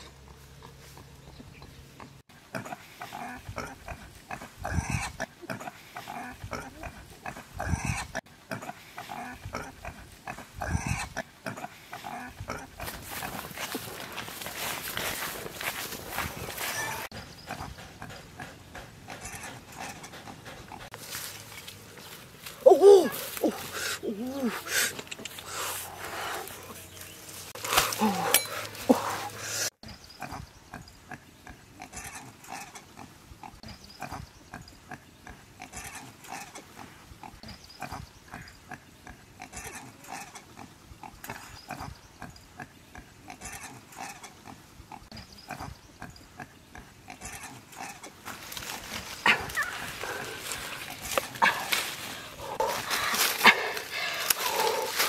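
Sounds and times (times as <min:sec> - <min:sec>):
piglets grunting: 0:02.5 - 0:13.5, 0:34.9 - 0:42.3, 0:42.9 - 0:55.0.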